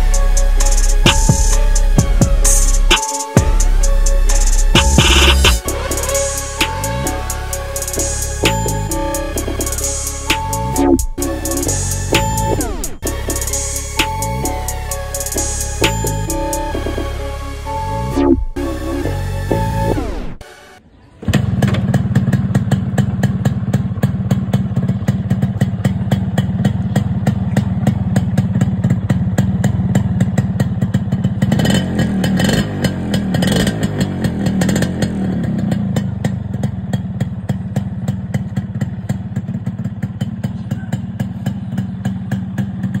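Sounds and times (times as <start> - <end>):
motorcycle engine idling and revving: 0.0 - 20.4, 21.2 - 43.0.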